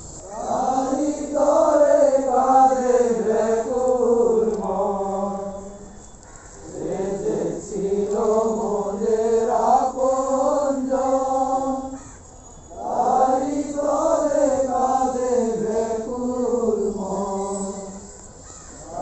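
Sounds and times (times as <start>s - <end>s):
voices chanting: 0.2s - 19.0s.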